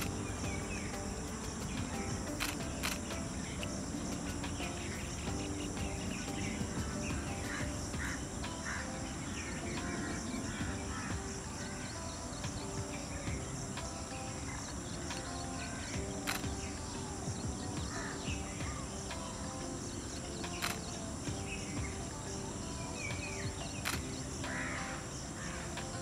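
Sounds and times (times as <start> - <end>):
bird chirps: 0.0 - 26.0
insect chirring: 0.0 - 26.0
sharp clicks: 0.8 - 5.4, 16.2 - 16.6, 20.4 - 21.0.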